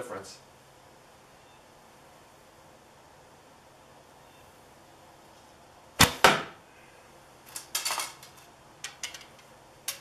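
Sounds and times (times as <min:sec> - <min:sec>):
sharp crack: 0:06.0 - 0:06.6.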